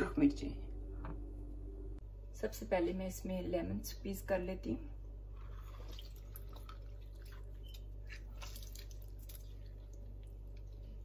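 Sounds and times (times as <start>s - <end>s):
steady low hum: 0.0s - 11.0s
juice dripping: 5.4s - 11.0s.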